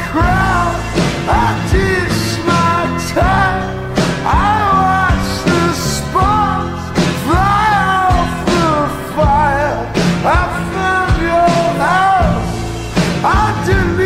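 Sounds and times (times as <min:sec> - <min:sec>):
instrumental backing: 0:00.0 - 0:14.0
person singing: 0:00.0 - 0:14.0.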